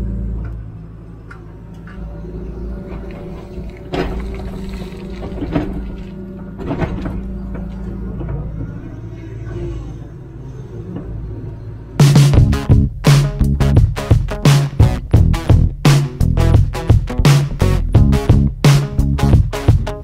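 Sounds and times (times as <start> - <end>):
bucket knocks and clatters: 3.9 - 7.3.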